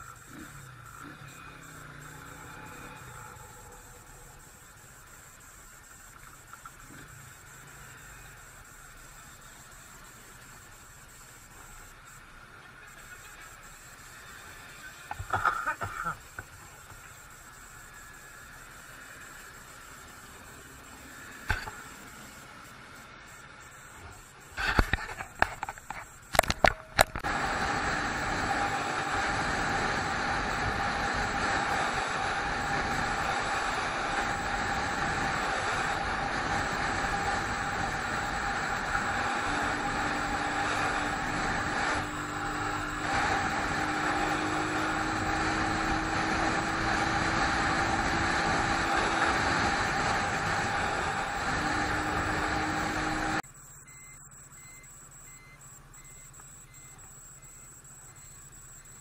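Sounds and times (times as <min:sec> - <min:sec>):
motorcycle engine running: 0:00.0 - 0:12.2, 0:12.8 - 0:53.4
wind and road rush: 0:16.2 - 0:53.4.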